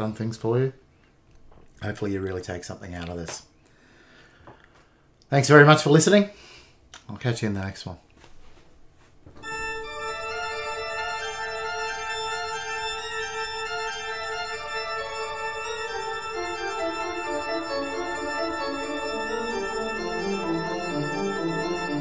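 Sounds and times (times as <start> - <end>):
slow organ-like chords: 9.4 - 22.0.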